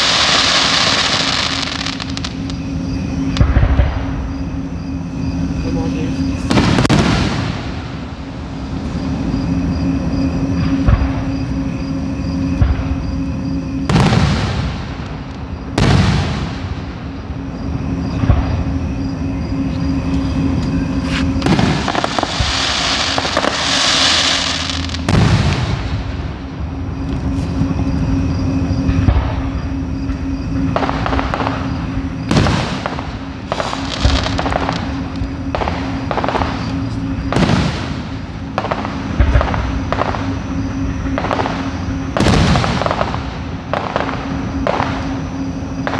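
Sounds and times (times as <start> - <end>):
fireworks hiss: 0.0 - 2.6, 20.2 - 26.2, 32.3 - 40.2
fireworks bursting bangs: 0.0 - 4.4, 6.4 - 9.4, 12.5 - 19.0, 20.2 - 45.9
low hum: 1.1 - 45.9.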